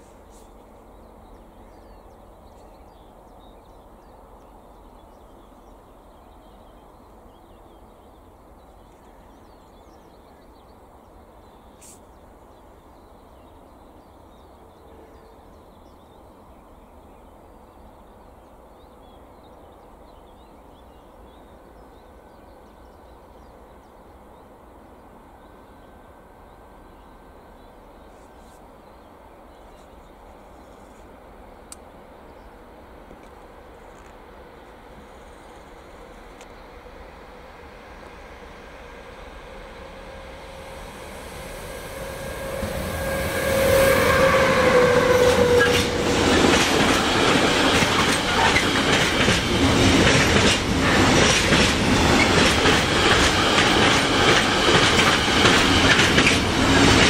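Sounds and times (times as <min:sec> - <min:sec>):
faint click: 0:35.5 - 0:36.6.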